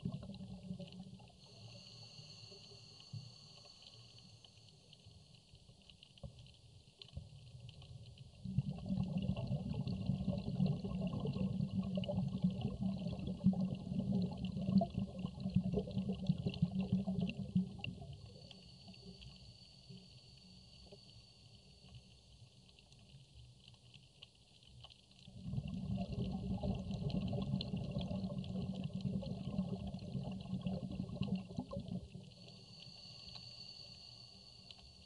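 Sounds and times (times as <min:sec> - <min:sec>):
rushing bubbling water rumble: 0:00.0 - 0:01.4, 0:08.3 - 0:18.4, 0:25.2 - 0:32.4
faint underwater crackle: 0:00.0 - 0:35.0.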